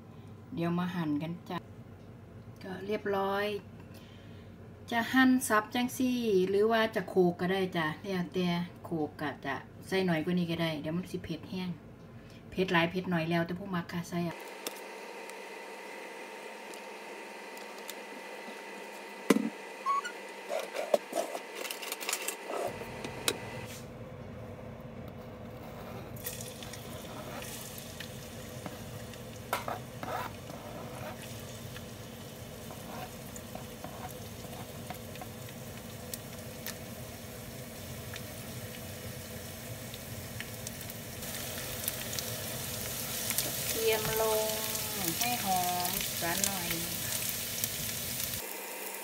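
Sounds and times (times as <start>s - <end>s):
oil sizzling in frying pan: 26.2s - 49.0s.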